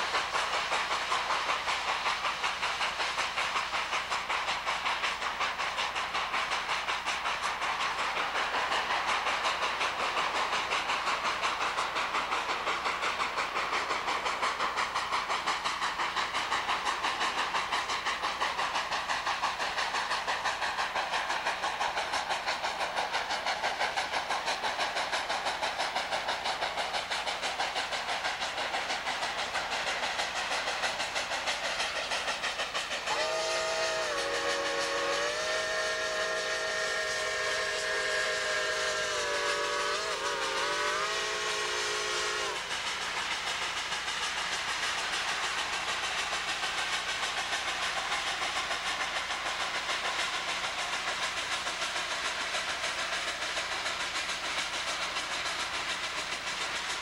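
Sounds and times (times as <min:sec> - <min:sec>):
rushing hiss of steam: 0:00.0 - 0:57.0
steam locomotive exhaust beats: 0:00.0 - 0:57.0
steam whistle blowing: 0:33.1 - 0:42.6.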